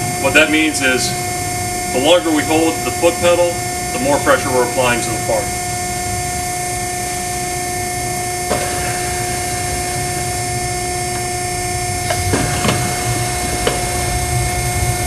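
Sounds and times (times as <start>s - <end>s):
steady hum and hiss: 0.0s - 15.0s.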